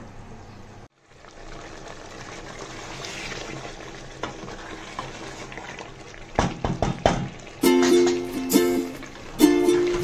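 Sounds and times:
curry bubbling in a pot: 0.9 - 10.0
wooden spoon knocking pot: 6.4 - 8.3.

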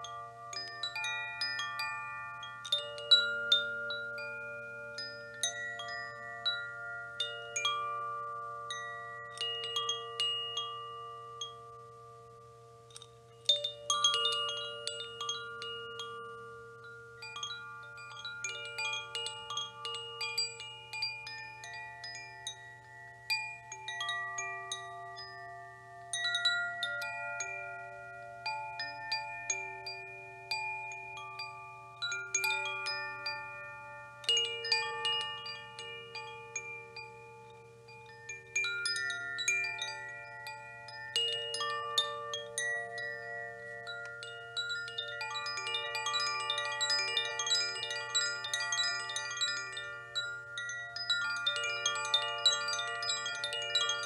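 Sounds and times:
wind chimes ringing: 0.0 - 54.0.

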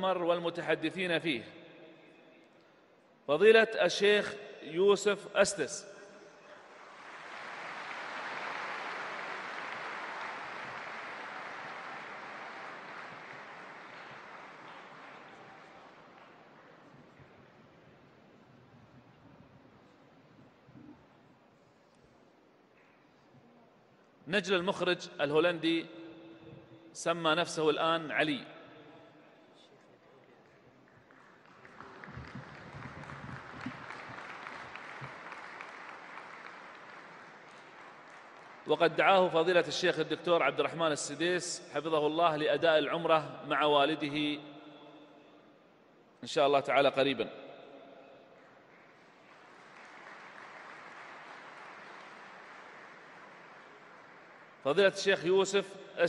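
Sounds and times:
audience applauding: 6.6 - 17.0, 30.4 - 39.0, 48.4 - 54.8.

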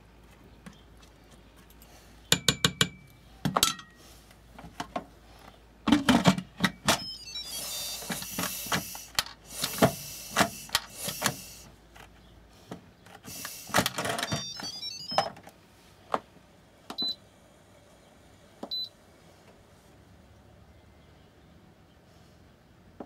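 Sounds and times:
electronic jingle of stepped beeps: 6.9 - 9.1, 14.2 - 15.3
short control panel beeps: 7.0 - 9.1, 14.2 - 15.3.

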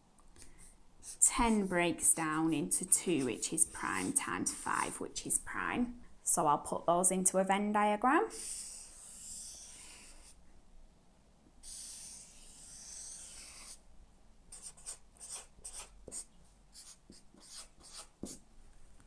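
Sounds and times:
marker pen on paper: 1.0 - 5.7, 8.3 - 10.4, 11.6 - 13.8, 14.5 - 18.4.

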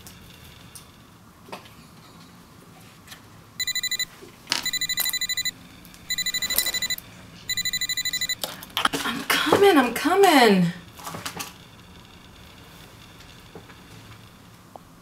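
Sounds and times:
electronic alarm beeping: 3.6 - 8.4.

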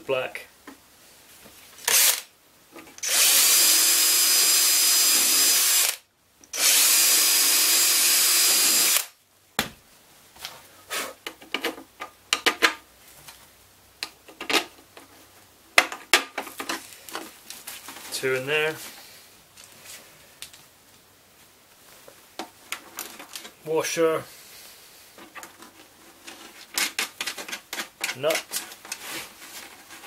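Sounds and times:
cordless drill boring plastic: 1.9 - 2.2, 3.0 - 9.1.

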